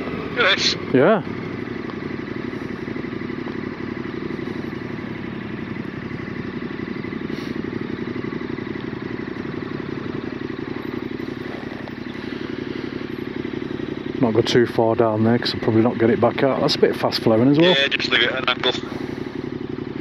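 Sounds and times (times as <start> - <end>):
motorcycle engine idling: 0.0 - 20.0.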